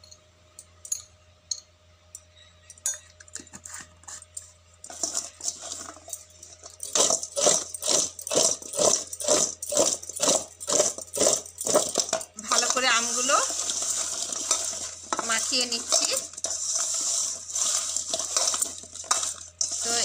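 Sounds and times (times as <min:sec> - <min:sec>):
mango slices clattering in steel bowl: 0:04.8 - 0:20.0.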